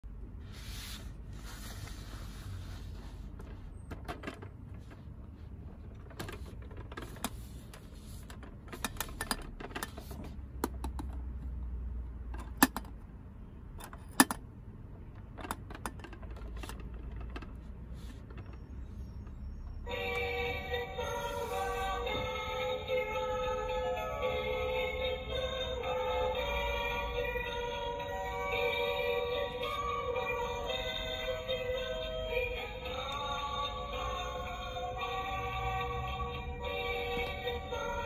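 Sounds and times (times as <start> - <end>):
plastic clicks and taps: 10.6 - 11.2.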